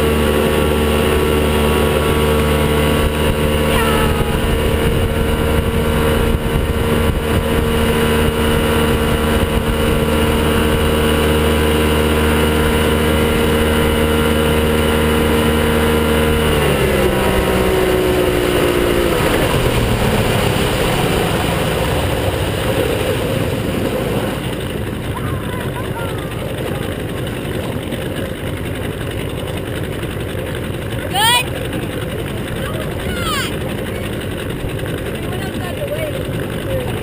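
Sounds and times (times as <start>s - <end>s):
outboard motor running: 0.0s - 37.0s
rushing wake water: 0.0s - 37.0s.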